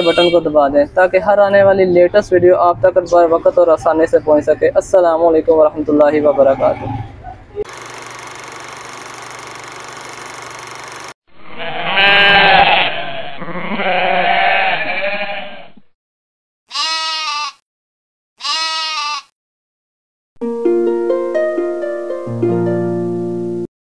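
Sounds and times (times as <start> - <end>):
animal bleating: 0.0 - 0.4, 11.4 - 15.8, 16.7 - 17.6, 18.4 - 19.4.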